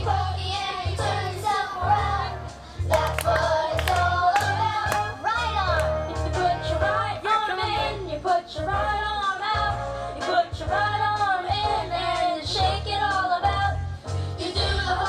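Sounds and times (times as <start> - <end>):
woman singing: 3.0 - 13.8.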